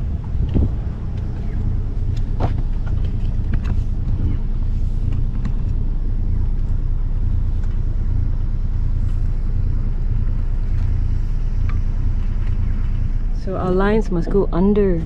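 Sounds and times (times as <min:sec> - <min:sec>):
wind buffeting microphone: 0:00.0 - 0:05.8
diesel engine droning: 0:00.0 - 0:15.0.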